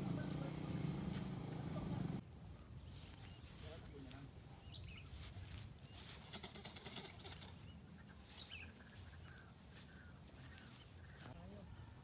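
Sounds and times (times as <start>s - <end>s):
footsteps rustling grass: 1.0s - 1.6s, 2.4s - 11.6s
bird chirps: 2.5s - 3.6s, 4.5s - 12.0s.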